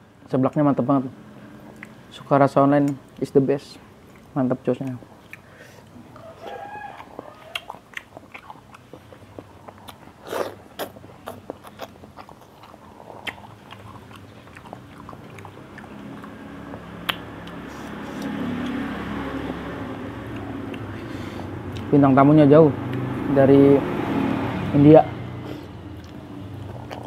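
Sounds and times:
passing vehicle engine: 0.7 - 2.7, 13.6 - 27.0
chewing and biting noodles: 5.2 - 21.9, 25.4 - 27.0.

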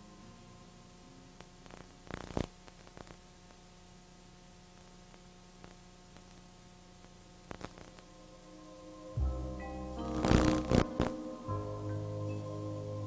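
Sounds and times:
recording hum and hiss: 0.0 - 13.0
short crackle: 1.4 - 3.6, 4.7 - 8.1, 10.0 - 11.2.

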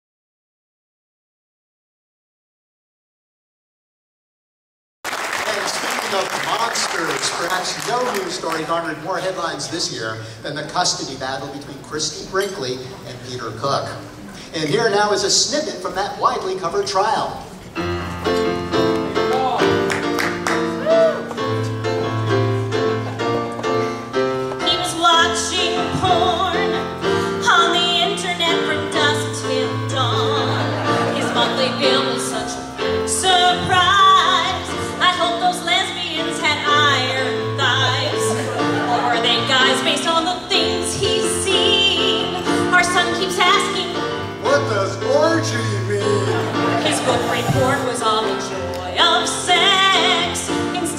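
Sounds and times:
instrumental accompaniment: 17.4 - 50.9
keyboard chords and bass line: 17.8 - 35.1, 35.7 - 50.9
woman singing with vibrato: 24.6 - 44.0, 46.8 - 50.9.

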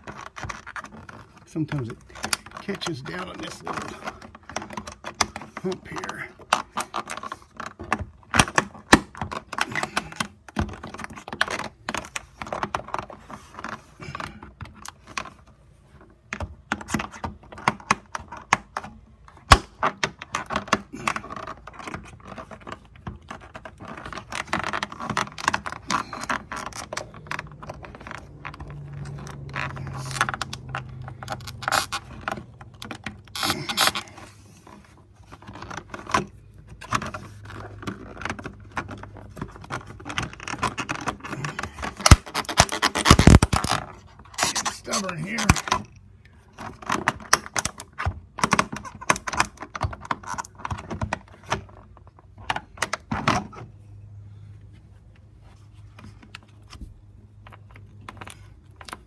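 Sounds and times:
clicking scraping and rattling: 0.0 - 53.7.

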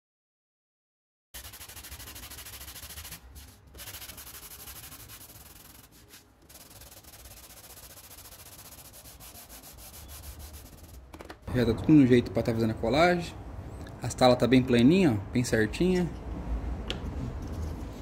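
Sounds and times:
scratchy sanding on sandpaper: 1.4 - 11.0.

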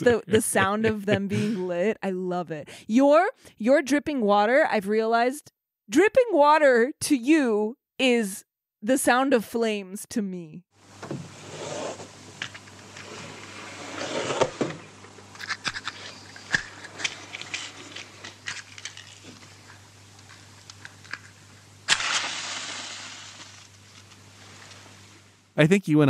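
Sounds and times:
steady low hum: 0.0 - 1.9, 10.8 - 26.0
match struck and hissing: 21.9 - 24.8.

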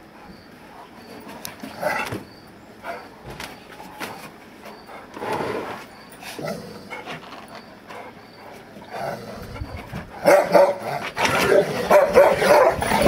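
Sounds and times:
dogs growling and barking: 4.9 - 13.0.

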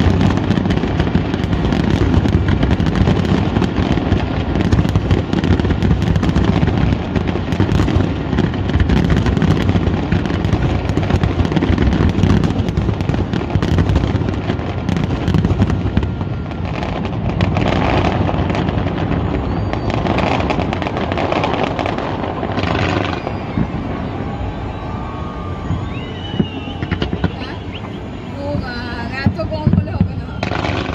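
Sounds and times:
deep firework booms: 0.0 - 30.9
firework crackling: 0.0 - 30.9.

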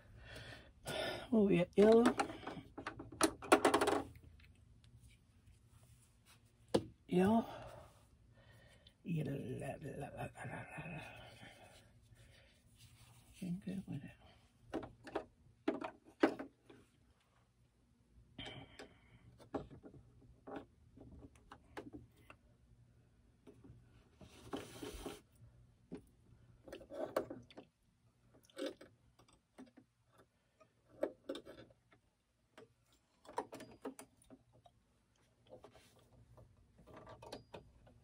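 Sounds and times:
faint clicks and knocks of handling: 1.8 - 7.1, 18.4 - 22.5, 23.3 - 38.0.

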